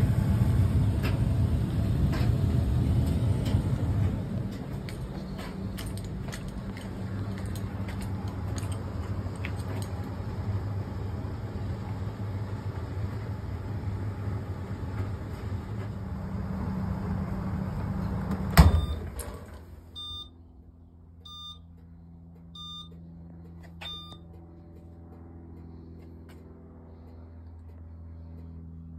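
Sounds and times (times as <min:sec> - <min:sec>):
clothes dryer running: 0:00.0 - 0:20.3
short electronic beeps: 0:20.0 - 0:20.4, 0:21.3 - 0:21.7, 0:22.6 - 0:23.0, 0:23.8 - 0:24.2.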